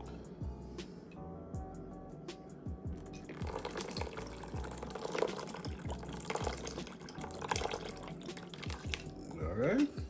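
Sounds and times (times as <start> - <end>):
background music with a beat: 0.0 - 3.3
liquid pouring into a bowl: 3.3 - 9.3.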